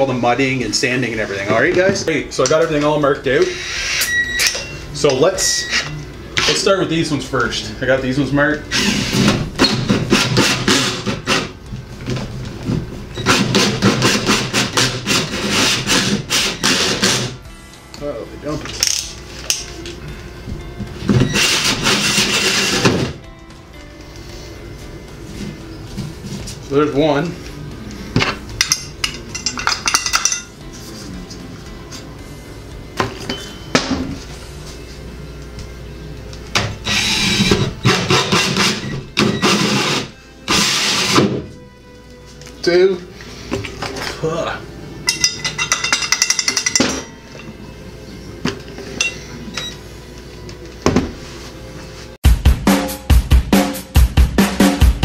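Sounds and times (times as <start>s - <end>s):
hole saw cutting drywall: 8.8s - 11.5s, 13.3s - 17.4s, 21.3s - 23.0s, 36.9s - 41.3s
drill hole saw grinding drywall: 36.9s - 41.2s.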